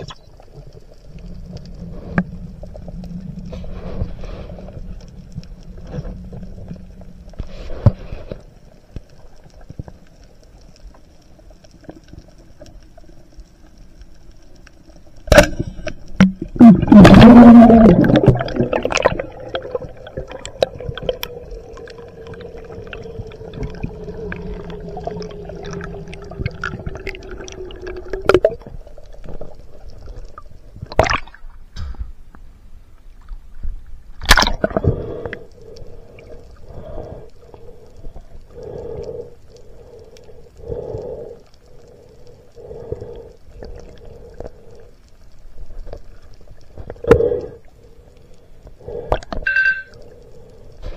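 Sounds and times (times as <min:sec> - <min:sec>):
underwater hum: 0:00.0 - 0:50.9
water splashes: 0:15.3 - 0:31.6, 0:34.2 - 0:38.0.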